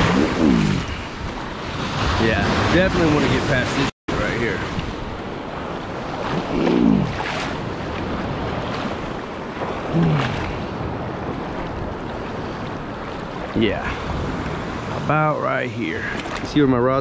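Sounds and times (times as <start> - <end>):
surf washing: 0.0 - 17.0
water sloshing: 4.6 - 15.0, 16.0 - 16.8.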